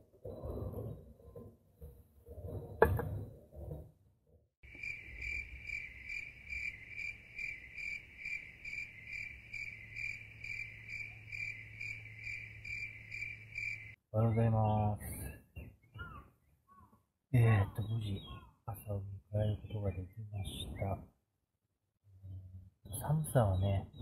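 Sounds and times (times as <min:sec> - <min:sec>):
insects chirping: 0:04.6 - 0:14.0.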